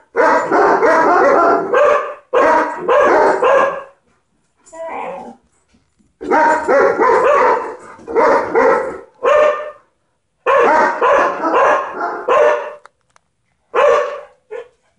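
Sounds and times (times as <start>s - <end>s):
dog barking: 0.0s - 4.0s, 6.2s - 12.8s, 13.7s - 14.8s.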